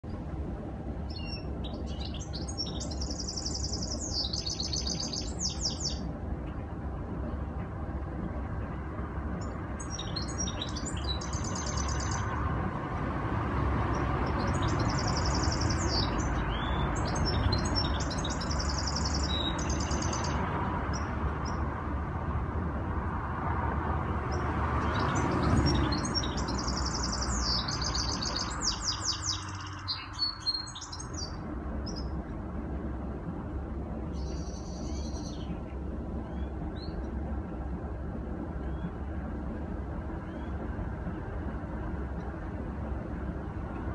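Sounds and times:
low rumble: 0:00.0 - 0:43.9
finch twittering song: 0:01.0 - 0:06.1, 0:09.4 - 0:12.5, 0:13.8 - 0:21.7, 0:24.3 - 0:32.2, 0:34.1 - 0:37.2, 0:40.2 - 0:40.6.

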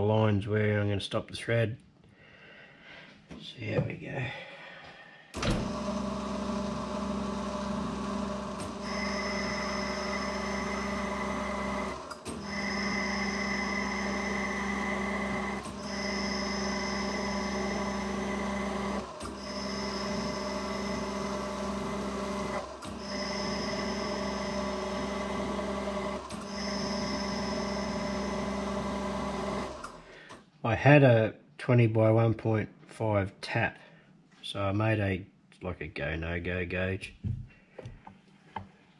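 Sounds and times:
metal lathe gear whine: 0:05.4 - 0:30.0
high tones of thread cutting: 0:08.4 - 0:30.4.

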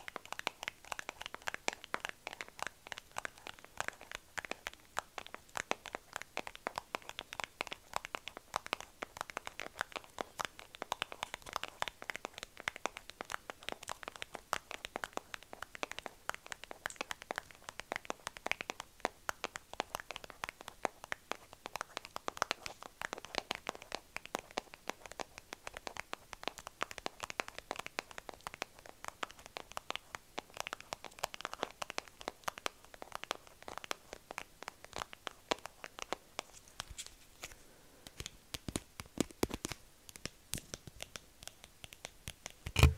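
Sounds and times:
fingernails tapping on plastic container: 0:42.7 - 0:42.9.

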